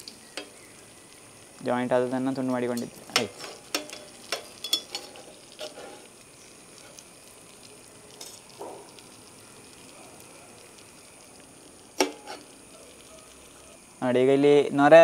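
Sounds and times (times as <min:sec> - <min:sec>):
food sizzling in hot oil: 0:00.0 - 0:15.0
steel skimmer clinking on pan: 0:02.7 - 0:05.9.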